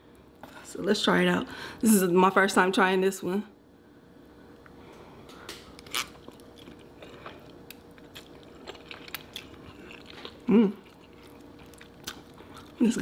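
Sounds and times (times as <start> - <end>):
wet chewing with mouth clicks: 5.4 - 13.0.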